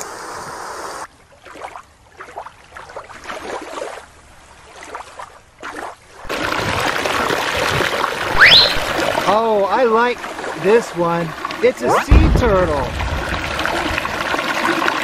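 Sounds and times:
creek rushing over rocks: 6.2 - 15.0.

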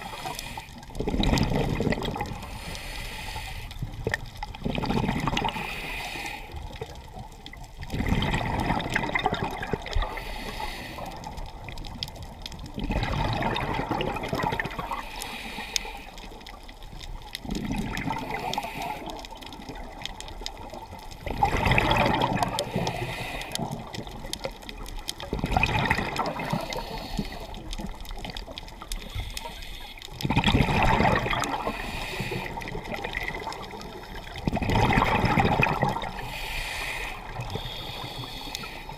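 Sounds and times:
diver breathing through regulator: 0.0 - 0.8, 2.4 - 3.9, 5.4 - 6.7, 10.0 - 11.4, 14.6 - 16.3, 18.1 - 19.2, 22.6 - 24.0, 26.2 - 27.9, 28.9 - 32.9, 35.8 - 38.9
air bubbles gurgling: 0.0 - 2.7, 3.8 - 5.7, 6.6 - 15.0, 16.4 - 29.4, 30.1 - 36.4.

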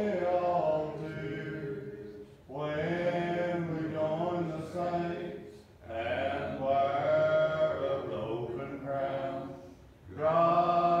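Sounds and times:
congregation singing a hymn: 0.0 - 11.0.

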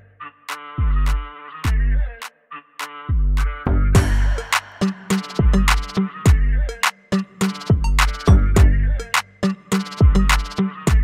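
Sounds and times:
hip-hop drum-machine beat: 0.5 - 1.9, 2.8 - 11.0
sliding bass notes: 0.8 - 2.1, 3.1 - 11.0.

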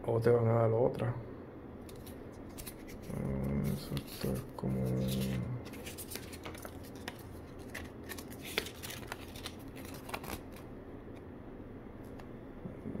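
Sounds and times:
paper rustling: 1.9 - 10.6.

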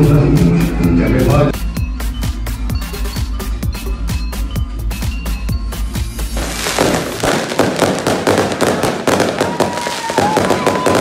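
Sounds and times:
fireworks crackling and banging: 6.2 - 11.0.

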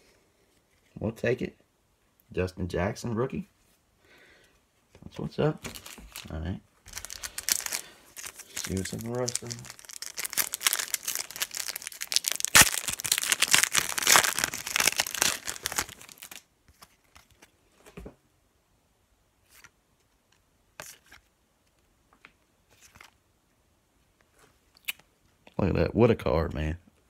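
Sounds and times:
cards clicking and rustling: 5.6 - 6.3, 6.9 - 17.5
wrapper tearing and crinkling: 5.6 - 16.4.

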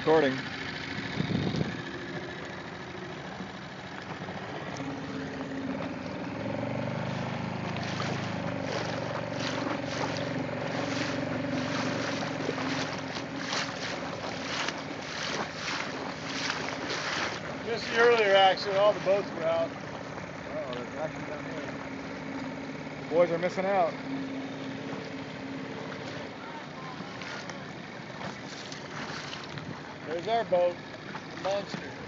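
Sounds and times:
boat engine humming: 0.0 - 32.0
wind buffeting microphone: 0.9 - 1.9.

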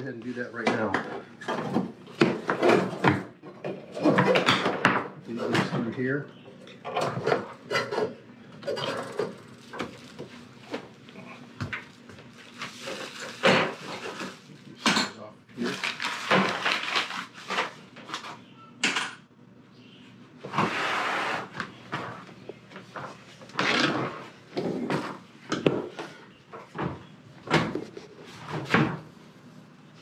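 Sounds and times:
plastic bag rustling: 11.9 - 14.7, 15.6 - 17.8.

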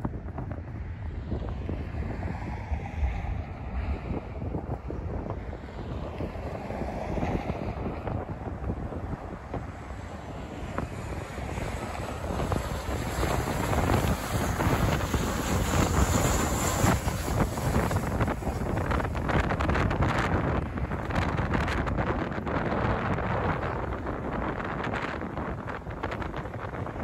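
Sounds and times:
jet engines roaring overhead: 0.0 - 27.0
wind buffeting microphone: 0.0 - 27.0.

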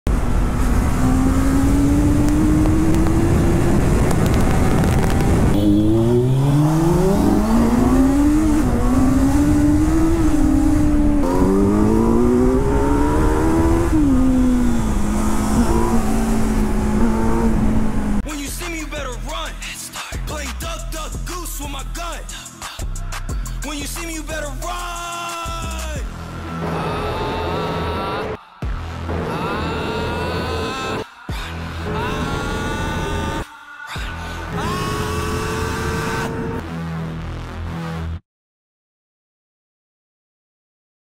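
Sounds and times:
heavy rushing noise: 0.1 - 18.2
motorcycle engines revving hard: 0.1 - 18.2, 34.8 - 36.6.

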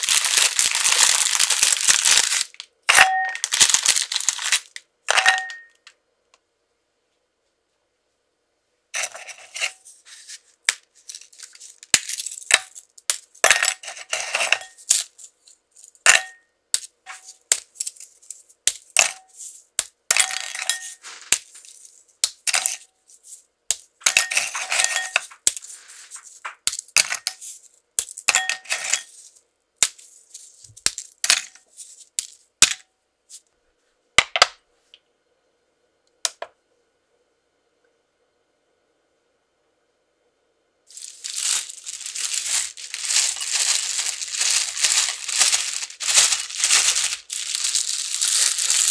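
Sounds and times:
pieces clinking into glass bowl: 2.9 - 3.7, 5.1 - 5.9, 13.4 - 15.0, 16.0 - 16.5, 20.1 - 21.0, 22.4 - 22.8, 24.0 - 25.4, 28.2 - 29.2.

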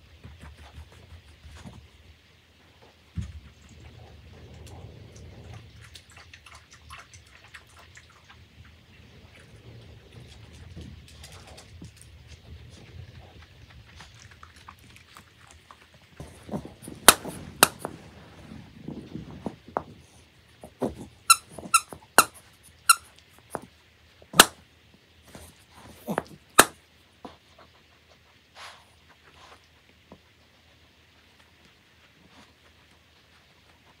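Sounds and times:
squeaky toy squeaking: 21.3 - 23.1.

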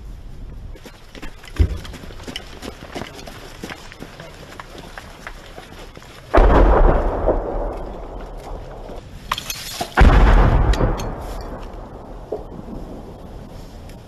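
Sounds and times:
loud explosions with rumble: 6.3 - 9.0, 10.0 - 13.6.

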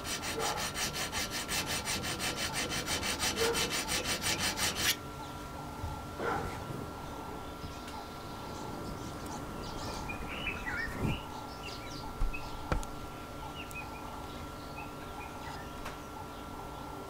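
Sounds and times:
small birds chirping: 7.1 - 16.9.

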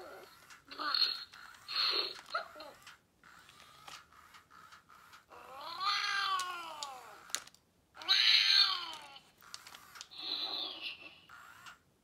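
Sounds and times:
toy speaker meow-like cry: 5.3 - 7.3, 8.0 - 9.3.

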